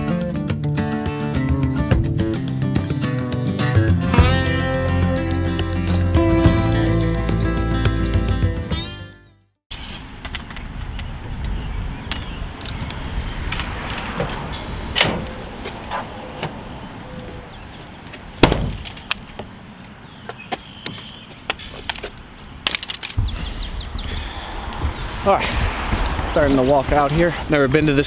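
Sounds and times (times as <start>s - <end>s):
tailgate and hatch thumping shut: 14.9s - 15.4s, 18.4s - 18.9s
fishing rods and tackle clattering: 21.6s - 23.2s.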